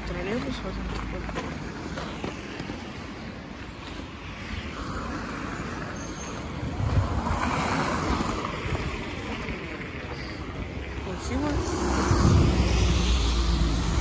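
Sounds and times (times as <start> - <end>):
road vehicle passing: 0.0 - 14.0.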